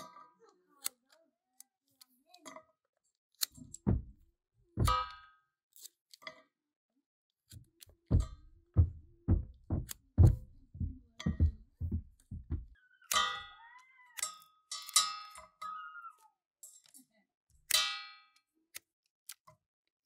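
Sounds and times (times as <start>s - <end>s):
metal pot ringing: 13.1s - 13.6s.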